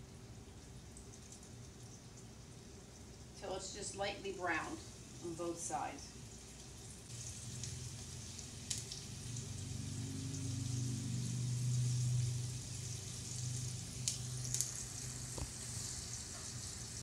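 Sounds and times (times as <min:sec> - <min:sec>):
fish sizzling in a skillet: 0:04.5 - 0:17.0.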